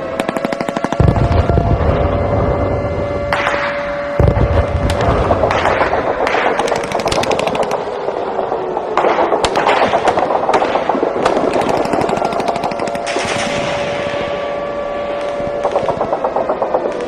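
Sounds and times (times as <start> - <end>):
steady tone: 0.0 - 17.0
automatic gunfire: 0.1 - 1.6, 4.2 - 7.9, 9.0 - 13.8.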